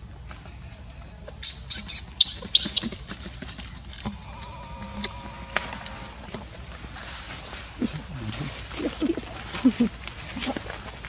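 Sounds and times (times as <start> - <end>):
baby monkey shrieking: 1.4 - 3.0.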